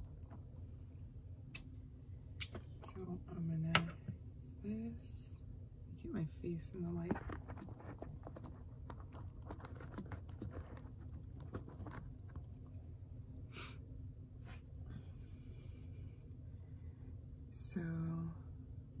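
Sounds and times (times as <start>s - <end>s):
low steady hum: 0.0s - 19.0s
fingertips rubbing skin: 7.1s - 12.5s.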